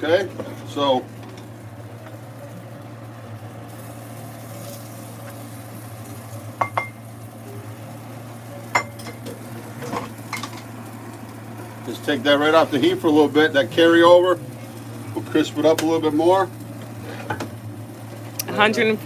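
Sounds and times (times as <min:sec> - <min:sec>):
faint sizzling: 0:00.0 - 0:19.0.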